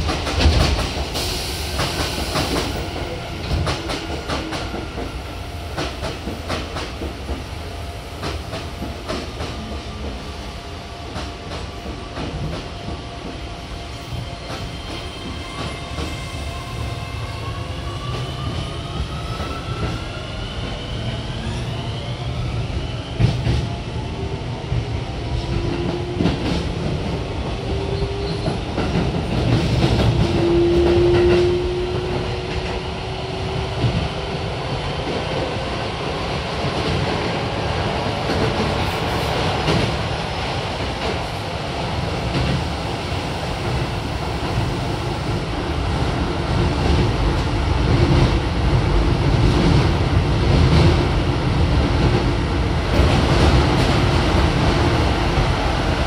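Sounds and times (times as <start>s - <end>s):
rail clacks: 0.0s - 7.5s, 38.2s - 56.0s
train wheel rumble: 17.7s - 56.0s.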